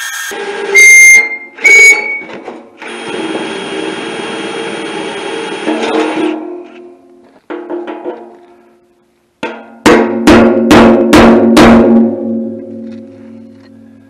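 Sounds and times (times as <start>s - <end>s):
hammer striking steel: 9.4s - 12.6s.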